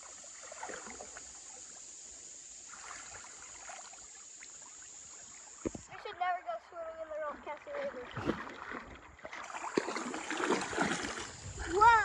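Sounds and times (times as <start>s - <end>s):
water sloshing around legs: 7.2s - 12.0s.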